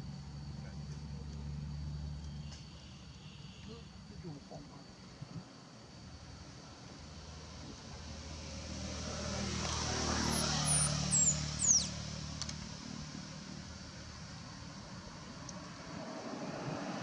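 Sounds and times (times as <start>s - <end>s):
vehicle engine passing by: 0.0s - 2.6s, 6.6s - 17.0s
high downward-sweeping chirps: 10.1s - 12.1s.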